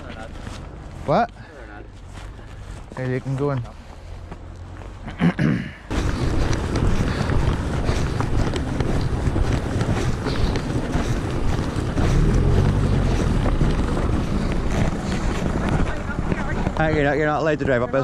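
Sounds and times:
wind buffeting microphone: 0:05.9 - 0:18.0.

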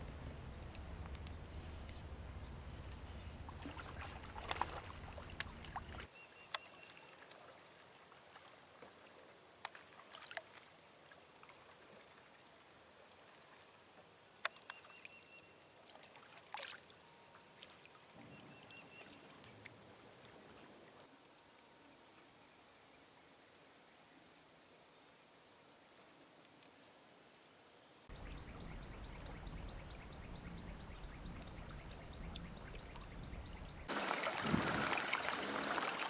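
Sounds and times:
faint water sounds: 0:00.0 - 0:36.0
wind rumble on microphone: 0:28.3 - 0:35.0.

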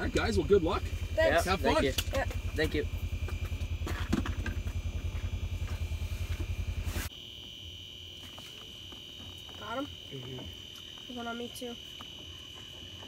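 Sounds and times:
vehicle engine running: 0:00.0 - 0:07.1
steady high-pitched whine: 0:00.0 - 0:13.0.

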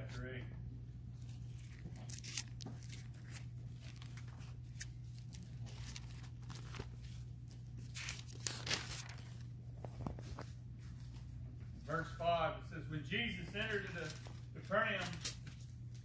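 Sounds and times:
steady low hum: 0:00.0 - 0:16.0
pages turning: 0:01.2 - 0:10.6, 0:13.4 - 0:16.0.

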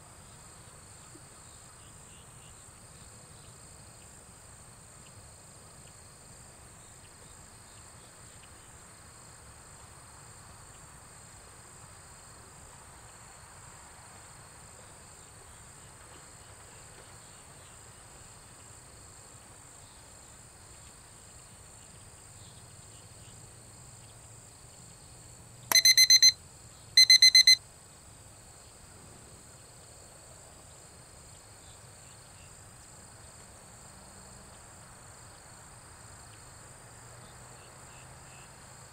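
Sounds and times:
insects chorus: 0:00.2 - 0:25.2, 0:30.6 - 0:38.9
rapid electronic beeping: 0:25.7 - 0:26.4, 0:27.0 - 0:27.6.

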